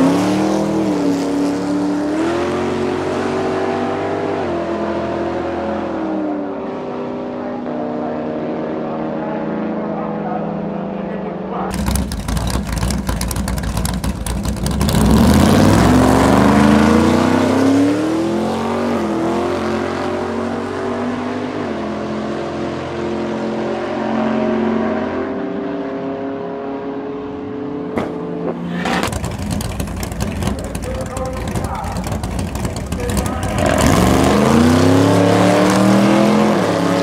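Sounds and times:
car engine revving hard: 0:00.0 - 0:09.9, 0:11.7 - 0:37.0
engine crackling rumble: 0:11.0 - 0:18.0, 0:28.0 - 0:36.6.

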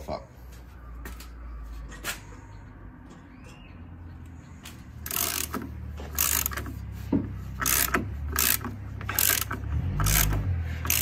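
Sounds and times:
socket ratchet clicking: 0:05.0 - 0:06.8, 0:07.5 - 0:11.0.

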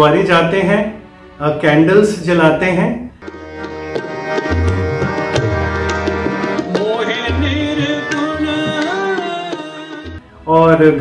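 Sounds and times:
harmonium chords: 0:00.0 - 0:11.0
tabla strokes: 0:03.2 - 0:10.2
man singing: 0:06.7 - 0:11.0.

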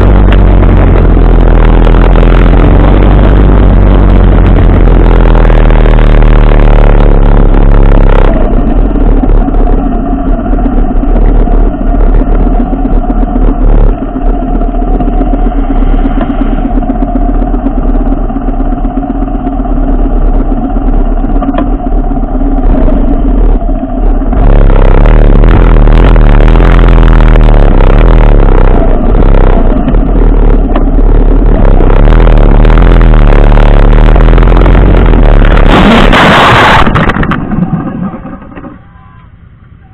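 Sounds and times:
motorcycle engines idling: 0:00.0 - 0:36.0, 0:36.6 - 0:39.9
motorcycle engine riding: 0:00.0 - 0:39.9
wind rush: 0:21.8 - 0:38.8.

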